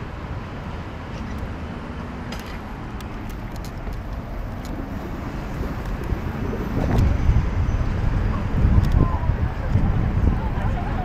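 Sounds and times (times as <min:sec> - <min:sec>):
city road traffic rumble: 0:00.0 - 0:11.0.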